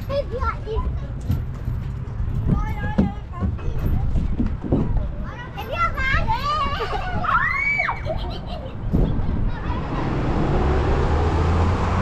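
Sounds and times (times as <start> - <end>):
child shouting: 5.6 - 8.1
vehicle passing with road noise: 8.8 - 12.0.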